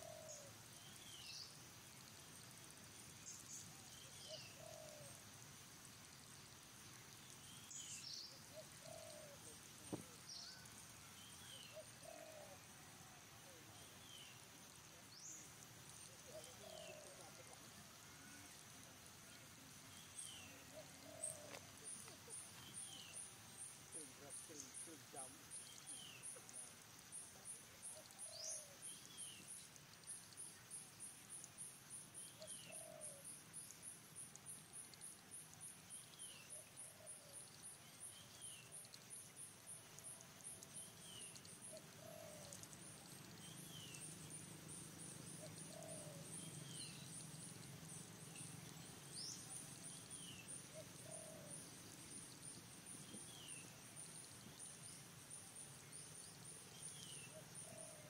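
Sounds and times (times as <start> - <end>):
bird chirping: 15.0 - 17.6, 19.8 - 55.0, 55.6 - 58.0.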